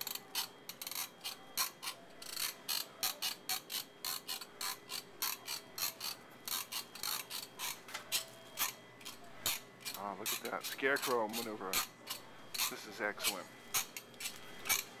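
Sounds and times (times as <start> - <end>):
ratchet-like mechanical clicking: 0.0 - 7.8.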